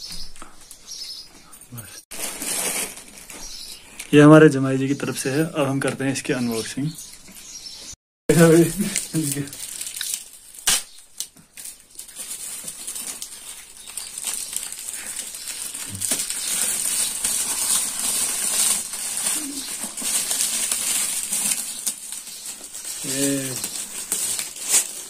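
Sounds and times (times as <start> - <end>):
foil gift wrap crinkling: 2.1 - 5.5, 8.3 - 25.0.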